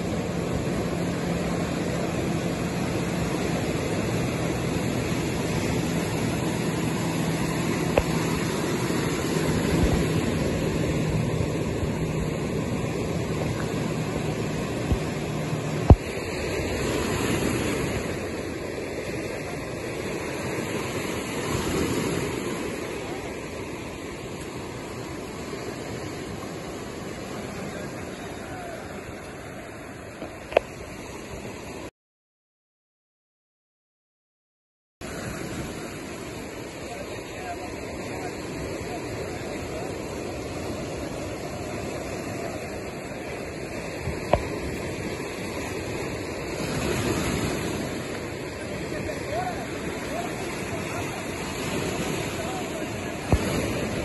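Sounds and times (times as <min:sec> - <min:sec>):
surf washing over cobbles: 0:00.0 - 0:29.4, 0:35.1 - 0:54.0.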